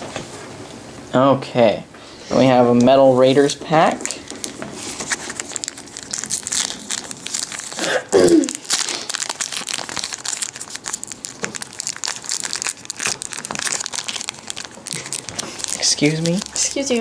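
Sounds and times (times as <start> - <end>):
foil wrapper tearing and crinkling: 3.4 - 17.0.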